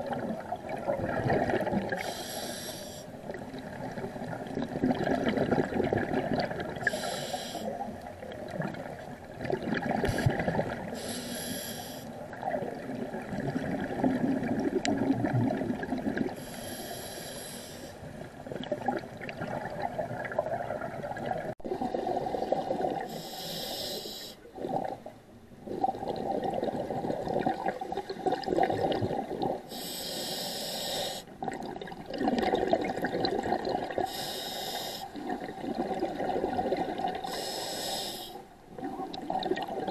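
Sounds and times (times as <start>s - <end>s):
exhaled bubbles rumbling: 0.0s - 2.0s, 3.2s - 6.9s, 7.8s - 11.0s, 12.2s - 16.4s, 18.0s - 23.1s, 24.4s - 29.7s, 31.4s - 34.0s, 35.2s - 37.2s, 38.7s - 39.9s
regulator inhale hiss: 2.0s - 3.2s, 6.9s - 7.8s, 10.1s - 12.2s, 16.4s - 18.1s, 23.0s - 24.4s, 29.7s - 31.3s, 34.0s - 35.2s, 37.2s - 38.5s.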